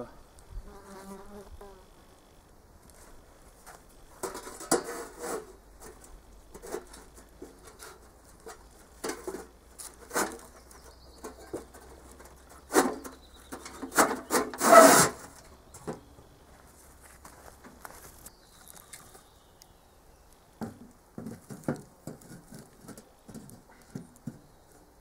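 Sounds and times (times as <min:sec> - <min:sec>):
metal lid scraping and knocking: 0:04.2 - 0:10.6.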